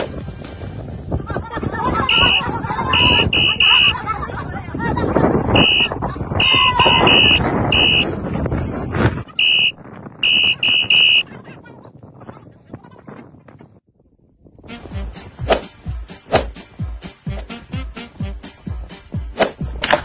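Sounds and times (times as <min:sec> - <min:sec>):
high-pitched beeps: 0:03.0 - 0:03.9, 0:05.6 - 0:08.1, 0:09.4 - 0:11.2.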